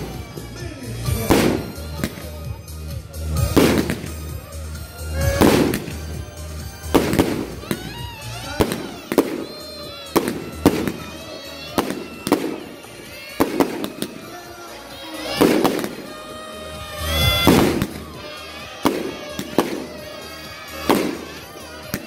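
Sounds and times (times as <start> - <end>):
fireworks bangs: 0.0 - 2.6, 3.2 - 22.0.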